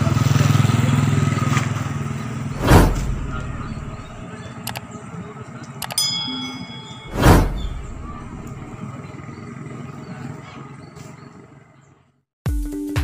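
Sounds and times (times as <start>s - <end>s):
whoosh: 2.6s - 4.2s, 6.8s - 8.8s
bright bell ding: 5.8s - 8.7s.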